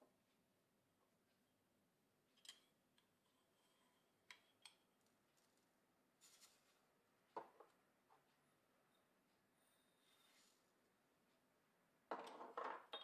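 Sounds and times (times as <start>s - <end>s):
short rustle: 6.2s - 6.8s
cup clicking and knocking: 12.1s - 13.0s.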